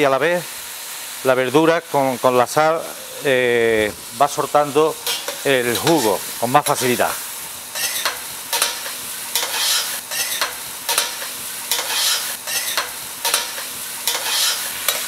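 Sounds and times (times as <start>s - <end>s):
vegetables sizzling in oil: 0.0s - 15.0s
metal spoon scraping pan: 5.0s - 6.8s, 7.7s - 15.0s.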